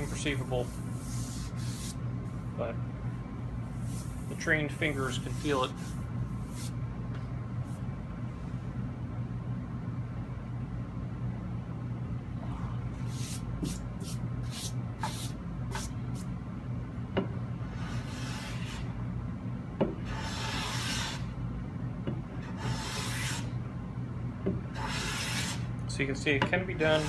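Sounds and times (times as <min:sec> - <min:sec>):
steady low hum: 0:00.0 - 0:27.0
hand plane shaving wood: 0:22.5 - 0:23.5, 0:24.8 - 0:25.6.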